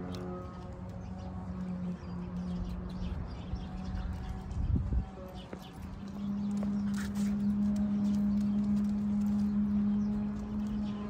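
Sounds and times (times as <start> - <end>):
footsteps on concrete: 3.9 - 10.8.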